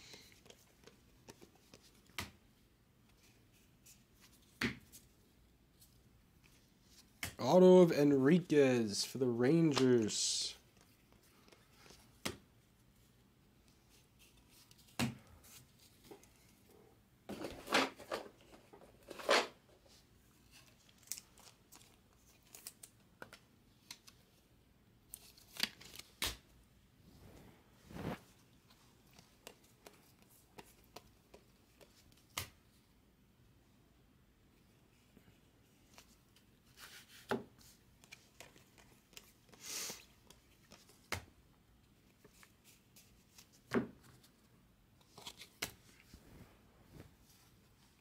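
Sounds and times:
cards rustling and clicking: 0.0s - 2.4s, 9.5s - 12.4s, 17.3s - 24.4s, 25.1s - 26.5s, 28.0s - 32.8s, 35.7s - 41.3s, 42.0s - 46.1s.

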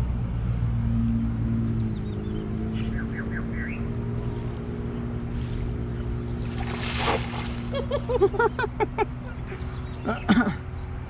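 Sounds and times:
steady low hum: 0.0s - 11.0s
net splashing on water: 6.3s - 8.2s.

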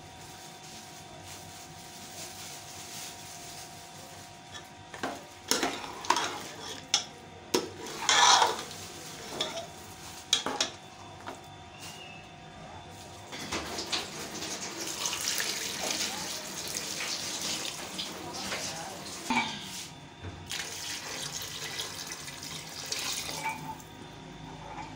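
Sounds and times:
metal ladle scraping pot: 7.8s - 9.7s.

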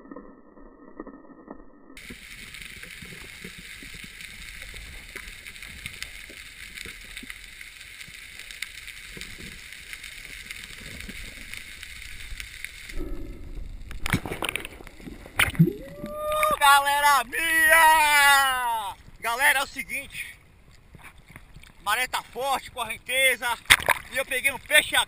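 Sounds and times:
underwater hiss: 2.0s - 16.2s
water sloshing: 23.6s - 24.2s.

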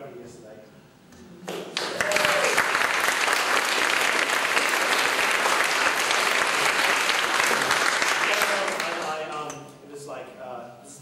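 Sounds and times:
audience applauding: 1.5s - 9.2s.

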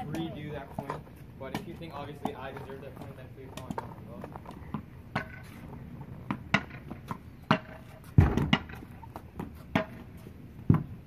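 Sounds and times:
ball bouncing on concrete: 0.0s - 11.0s
heavy thump: 8.2s - 8.8s.

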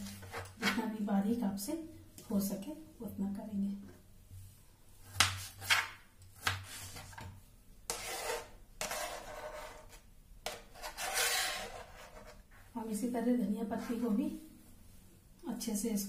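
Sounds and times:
knife scraping tomato across board: 0.0s - 0.8s, 5.0s - 12.5s.

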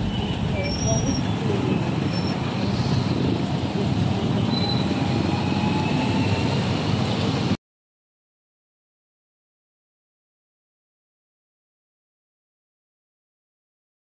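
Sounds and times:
traffic engines rumbling: 0.0s - 7.6s.

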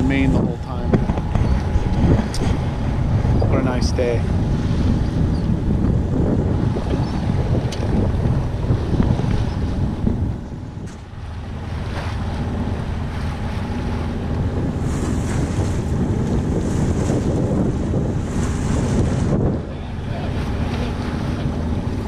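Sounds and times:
diesel engine drone: 0.0s - 16.6s
water splashing along hull: 0.0s - 22.0s
wind buffeting microphone: 0.0s - 22.0s.

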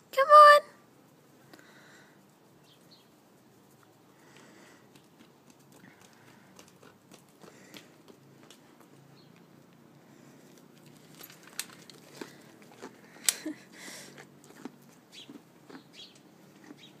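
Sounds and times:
goat crunching carrot: 10.2s - 17.0s.

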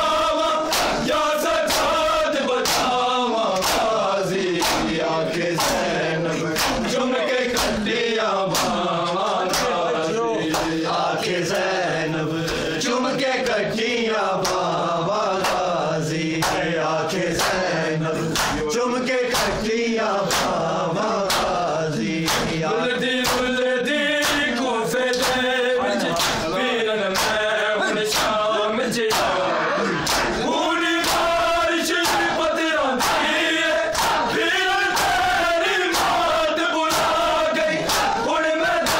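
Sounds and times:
men chanting in unison: 0.0s - 38.9s
hands slapping bare chests: 0.7s - 1.0s, 2.6s - 4.0s, 4.6s - 5.0s, 5.6s - 5.9s, 6.6s - 7.8s, 8.5s - 8.8s, 14.4s - 14.6s, 18.3s - 18.6s, 20.3s - 20.6s, 21.3s - 21.6s, 22.2s - 22.6s, 25.1s - 25.4s, 30.0s - 30.4s.

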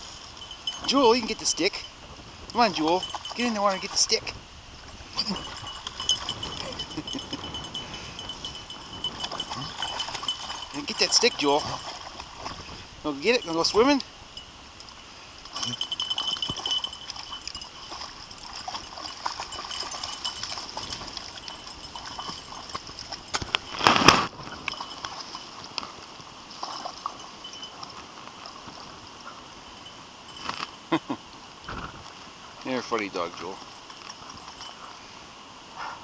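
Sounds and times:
dogs splashing in water: 2.5s - 14.0s, 15.4s - 28.9s.

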